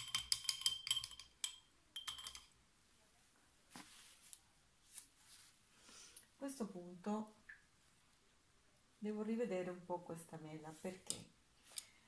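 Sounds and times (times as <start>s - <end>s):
faint rustle: 3.3s - 5.9s.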